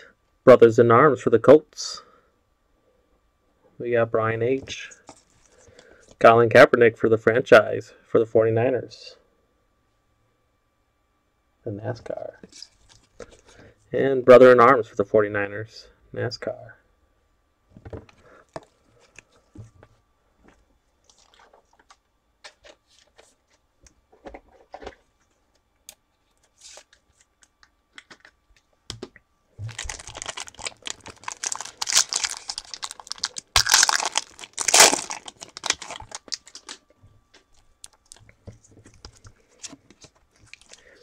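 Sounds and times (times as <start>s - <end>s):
wrapper tearing and crinkling: 29.6s - 36.8s, 40.4s - 40.9s.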